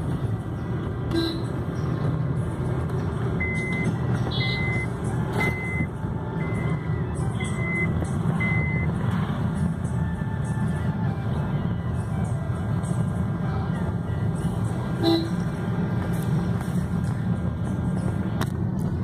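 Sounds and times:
car engine and road noise: 0.0s - 19.0s
short high electronic beeps: 3.4s - 6.6s.

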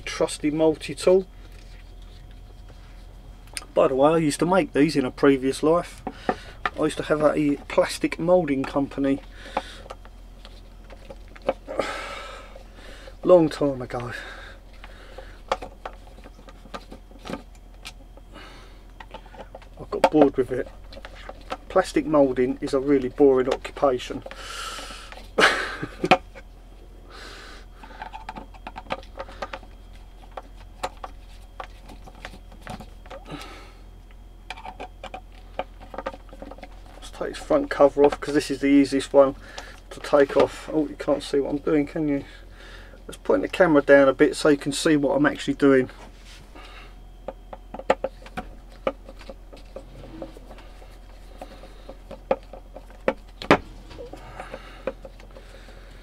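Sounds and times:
hands handling a pump: 27.8s - 33.5s, 34.5s - 41.9s, 47.2s - 56.0s.

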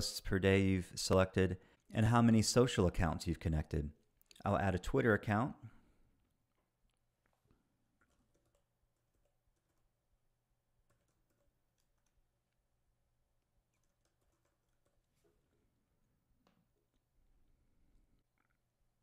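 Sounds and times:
keyboard typing clicks: 8.0s - 9.9s, 10.8s - 12.2s.

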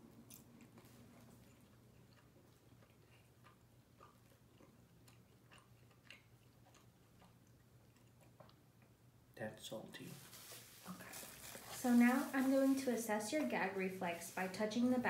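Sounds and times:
chewing with mouth closed: 0.2s - 8.9s.

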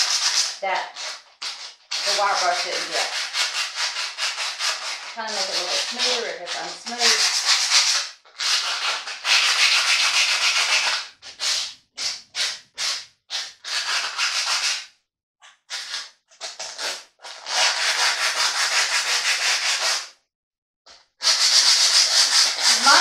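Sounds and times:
sandpaper rasping on metal: 0.0s - 14.9s, 15.7s - 20.1s, 21.2s - 23.0s.

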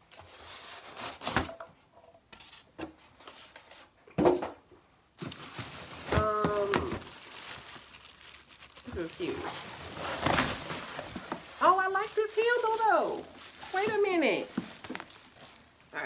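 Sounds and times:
plastic bag rustling: 5.2s - 16.0s.

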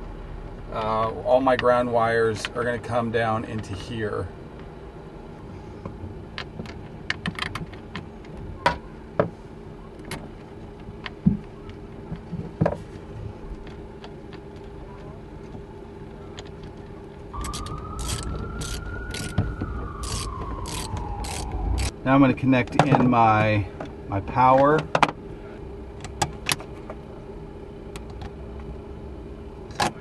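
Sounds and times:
mechanical whine with clicks: 16.4s - 22.0s.

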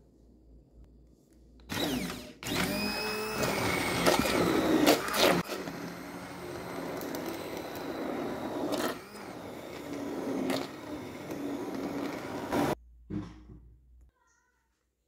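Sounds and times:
immersion blender whirring: 1.7s - 12.8s.

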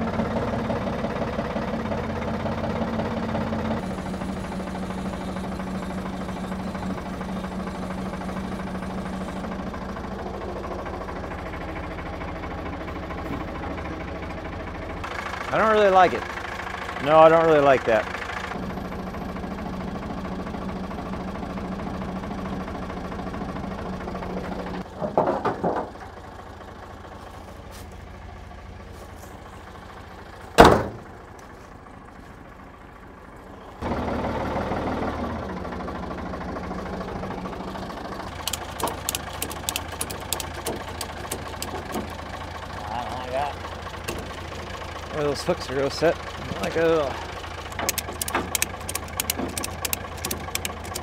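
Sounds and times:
backhoe engine idling: 0.0s - 51.0s
light metallic clicks: 38.4s - 42.0s.

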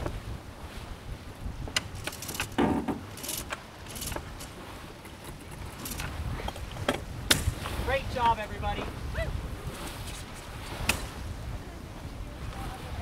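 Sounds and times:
wind and water rushing along hull: 0.0s - 13.0s.

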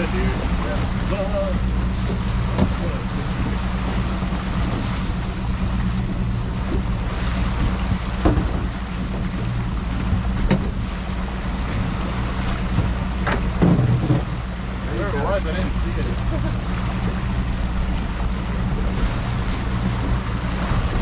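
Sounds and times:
outboard motor humming: 0.0s - 21.0s
water rushing past boat: 0.0s - 21.0s
wind: 0.0s - 21.0s
short knocks: 8.2s - 8.7s.

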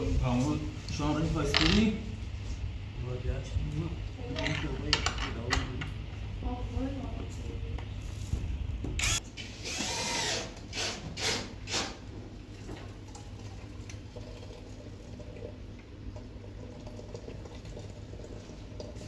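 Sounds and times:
water pouring into a cup: 12.5s - 19.0s.

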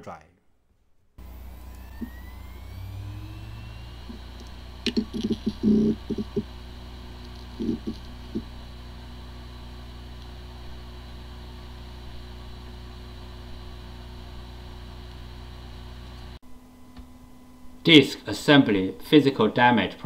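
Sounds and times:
hard disk spinning hum: 1.2s - 20.0s
low thumps: 4.0s - 6.6s.

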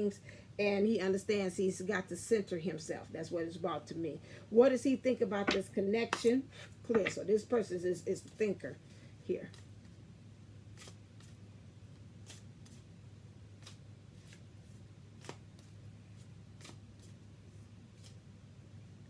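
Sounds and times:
low steady hum: 0.0s - 19.0s
cards being shuffled: 10.7s - 11.4s, 12.0s - 12.9s, 13.5s - 18.3s.

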